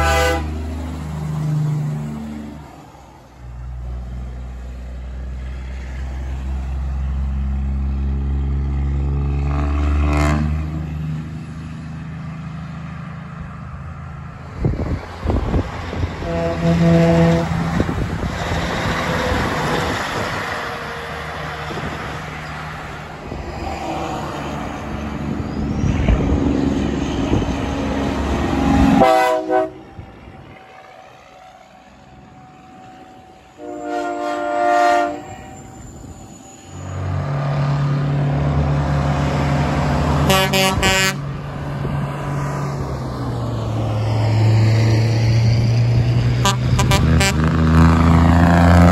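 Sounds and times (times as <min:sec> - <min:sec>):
truck air horn blasts: 0:00.0 - 0:00.6, 0:10.0 - 0:10.8, 0:16.2 - 0:17.7, 0:28.8 - 0:30.0, 0:33.5 - 0:35.7, 0:40.2 - 0:41.3, 0:46.4 - 0:47.6
diesel truck engines: 0:00.0 - 0:48.9.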